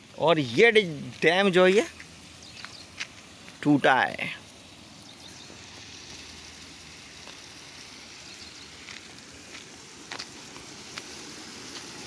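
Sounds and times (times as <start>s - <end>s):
footsteps through dry grass: 0.0s - 3.7s, 8.7s - 12.0s
quiet steady hiss: 0.0s - 12.0s.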